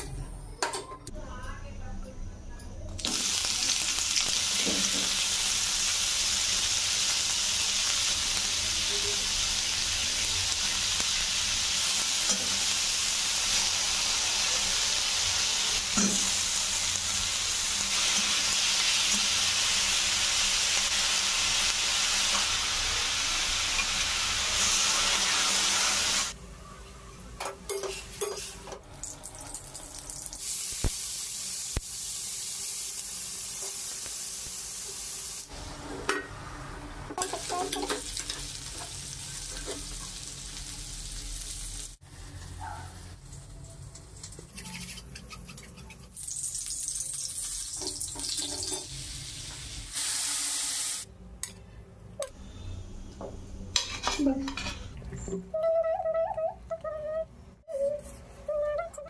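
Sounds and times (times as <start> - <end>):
food sizzling in a pan: 3.0 - 26.4, 27.8 - 36.1, 37.2 - 45.0, 46.0 - 51.1.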